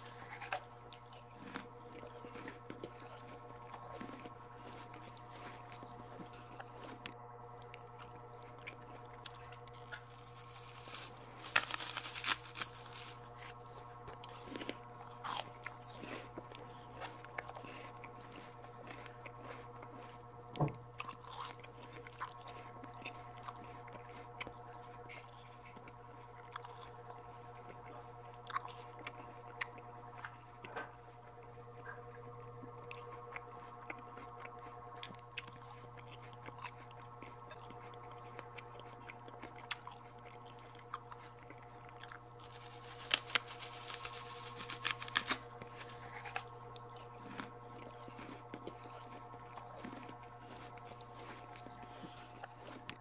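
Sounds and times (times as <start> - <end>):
crunching and chewing fruit: 0.0 - 53.0
steady low hum: 0.0 - 53.0.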